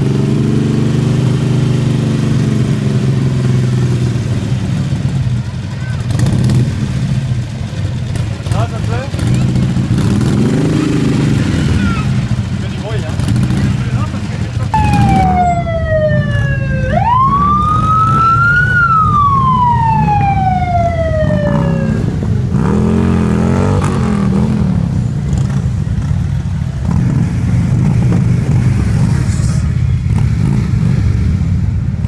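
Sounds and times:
motorcycles rumbling: 0.0s - 32.0s
engine revving: 6.0s - 7.2s, 8.4s - 26.2s, 26.8s - 31.9s
siren wailing: 14.7s - 22.4s.

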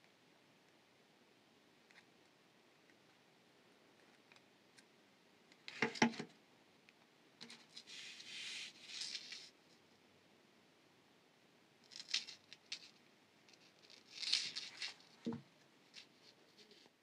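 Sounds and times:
wire scratching and rustling: 7.4s - 9.8s, 11.9s - 17.0s.

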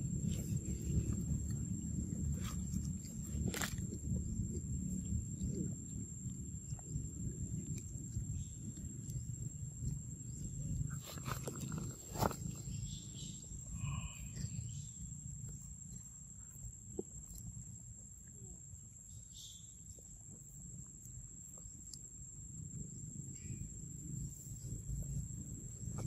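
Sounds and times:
low rumble: 0.0s - 17.7s
high-pitched insect tone: 0.0s - 26.0s
faint chirps: 4.3s - 26.0s.

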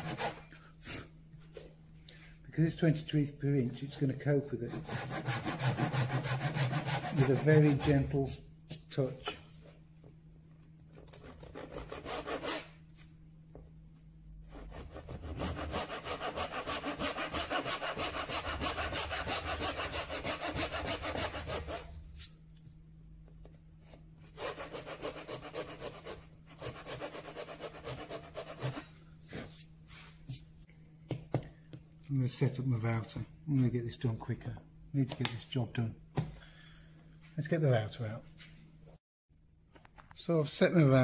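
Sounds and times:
hand saw cutting wood: 0.0s - 0.5s, 4.6s - 8.2s, 11.2s - 12.7s, 14.5s - 21.9s, 24.4s - 28.9s.

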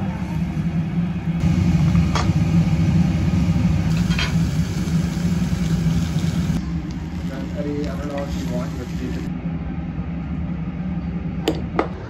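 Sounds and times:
extractor fan humming: 0.0s - 9.6s.

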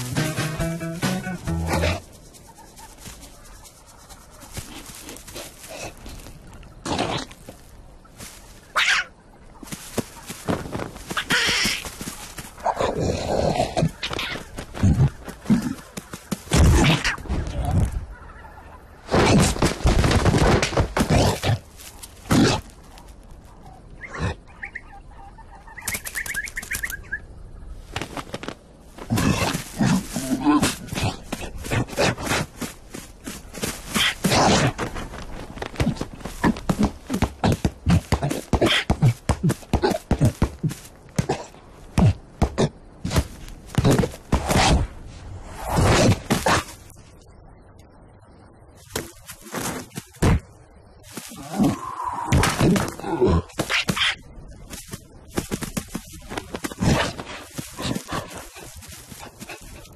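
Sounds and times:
rustling bursts: 0.0s - 8.8s, 9.6s - 12.8s, 27.8s - 42.3s, 52.6s - 59.9s
cartoon birds twittering: 11.0s - 12.7s, 23.8s - 27.4s.

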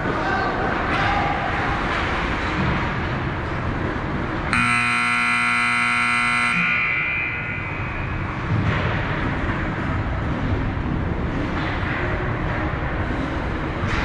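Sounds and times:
arena noise: 0.0s - 14.0s
scoreboard horn: 4.5s - 7.6s.

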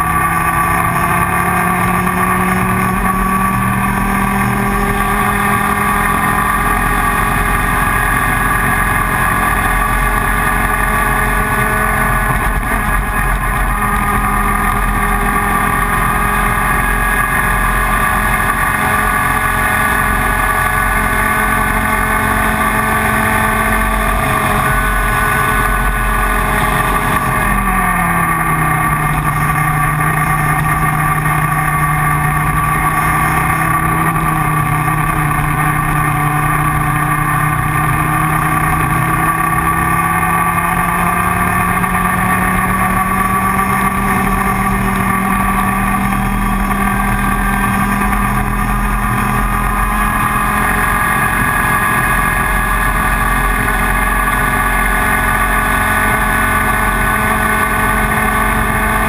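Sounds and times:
kart engine running: 0.0s - 59.0s.

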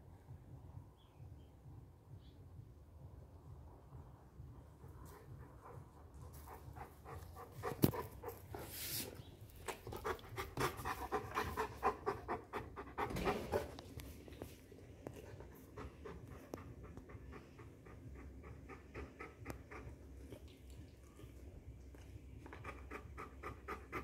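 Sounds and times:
dog panting fast: 4.8s - 14.2s, 15.1s - 20.4s, 22.5s - 24.0s.

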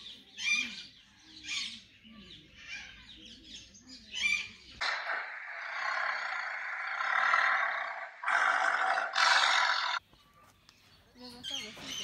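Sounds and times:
tiger harsh call: 4.8s - 10.0s.

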